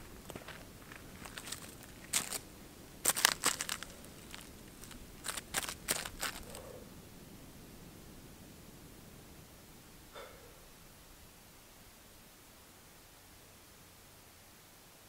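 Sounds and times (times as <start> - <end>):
footsteps on dry ground: 0.0 - 6.7
small object crinkling: 0.0 - 6.7.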